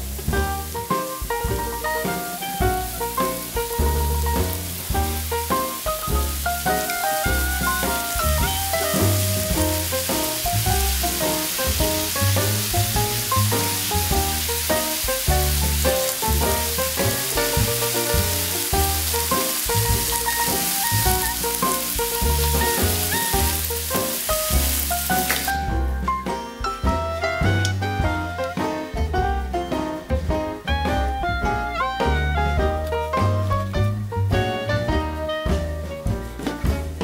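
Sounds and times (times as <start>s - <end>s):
food sizzling on a grill: 0.0s - 26.0s
background music with bass line: 0.0s - 37.0s.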